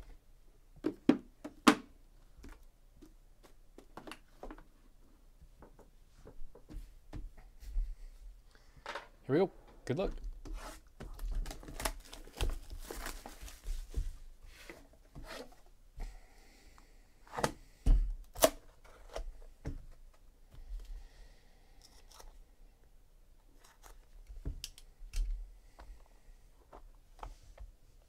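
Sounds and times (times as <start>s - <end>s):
rustling and scraping: 10.4s - 15.7s.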